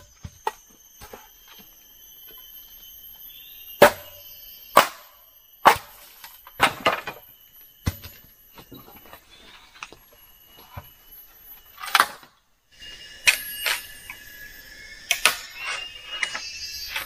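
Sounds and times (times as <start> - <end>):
bamboo being chopped: 3.8 - 6.0.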